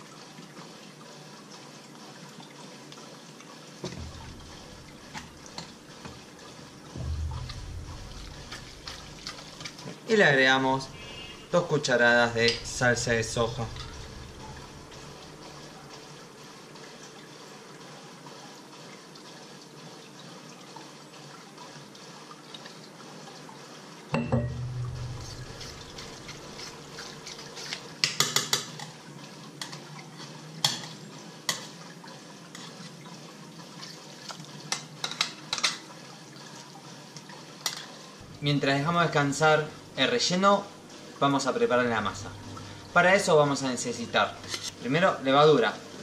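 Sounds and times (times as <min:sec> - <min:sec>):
room hiss: 0:07.0 - 0:15.9, 0:38.2 - 0:46.0
fork scraping metal pot: 0:11.0 - 0:11.6, 0:25.0 - 0:28.5, 0:44.4 - 0:44.8.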